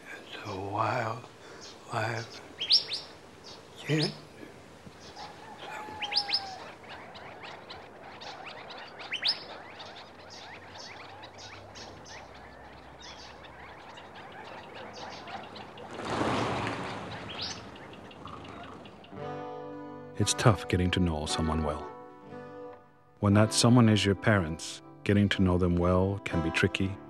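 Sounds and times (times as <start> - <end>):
small birds chirping: 0.0 - 19.4
rising whistled bird calls: 1.6 - 4.3, 4.9 - 19.2.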